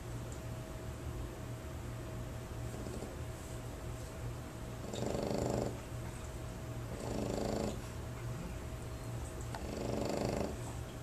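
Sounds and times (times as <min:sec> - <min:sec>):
dog snoring: 0:02.8 - 0:03.2, 0:04.8 - 0:05.8, 0:06.9 - 0:07.8, 0:09.5 - 0:10.7.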